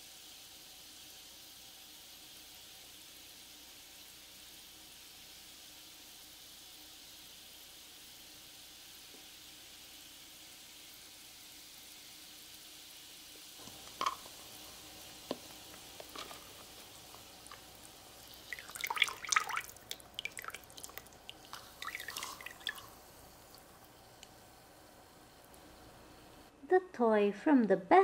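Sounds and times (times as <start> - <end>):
faint steady hiss: 0.0 - 28.0
water dripping and splashing: 13.6 - 24.4.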